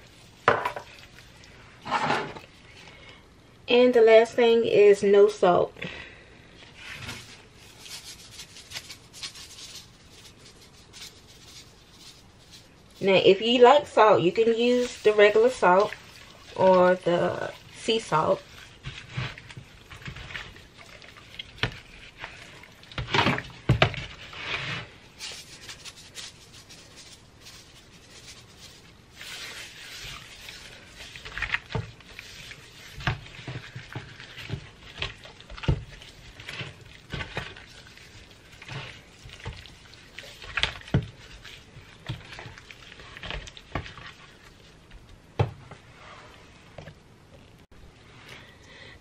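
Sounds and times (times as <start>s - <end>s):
hands rubbing raw chicken: 6.7s - 45.2s.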